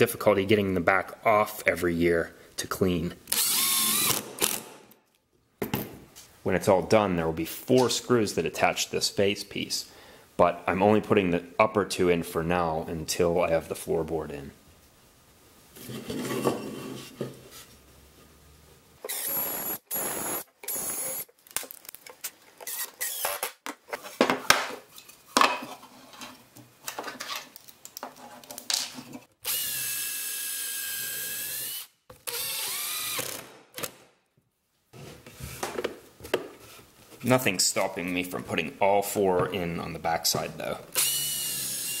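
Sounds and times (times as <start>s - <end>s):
cordless drill motor whine: 19.1s - 21.2s, 22.7s - 23.4s, 29.5s - 33.3s, 41.0s - 42.0s.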